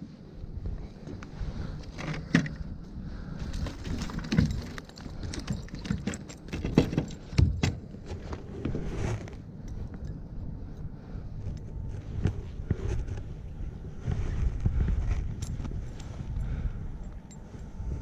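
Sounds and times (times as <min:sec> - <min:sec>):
wind on microphone: 0:08.4 - 0:18.0.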